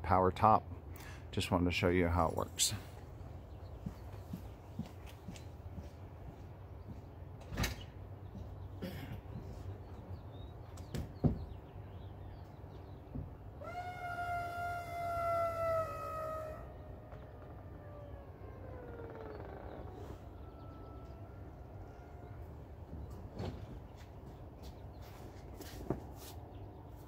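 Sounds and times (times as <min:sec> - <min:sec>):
latch clunks: 0:07.4 - 0:07.9.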